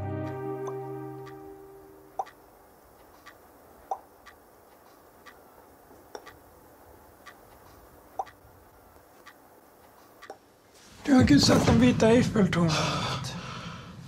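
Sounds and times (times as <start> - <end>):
clock ticking softly: 2.1 - 2.4, 3.0 - 6.5, 7.1 - 8.4, 9.0 - 10.4.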